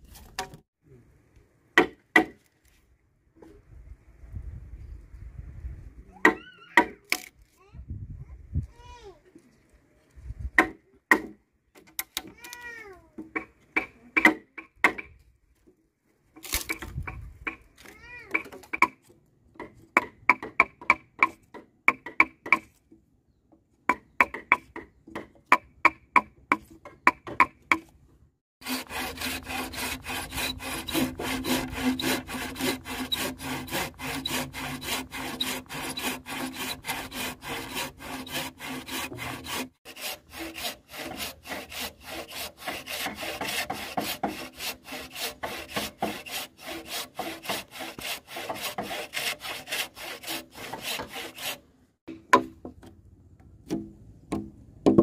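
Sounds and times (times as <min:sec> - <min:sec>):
hand saw cutting wood: 0:28.6 - 0:52.6.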